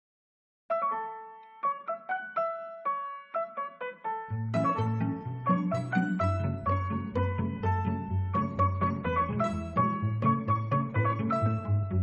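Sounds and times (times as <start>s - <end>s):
keyboard notes: 0.7s - 12.0s
bass line: 4.3s - 12.0s.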